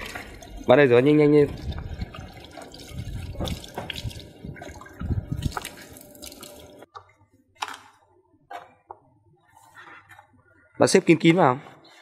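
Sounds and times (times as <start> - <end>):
tap water splashing onto concrete: 1.5 - 6.7.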